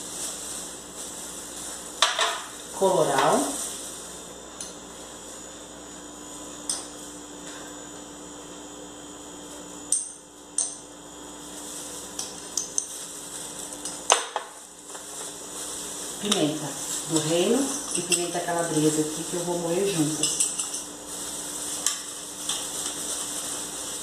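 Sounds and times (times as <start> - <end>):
metal spoon clinking on glass: 20.1 - 20.9.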